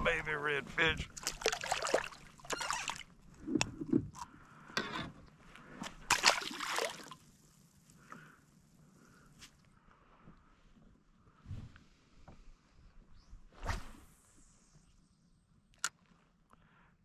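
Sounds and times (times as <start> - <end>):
fish splashing in water: 1.2 - 3.1, 6.1 - 7.2.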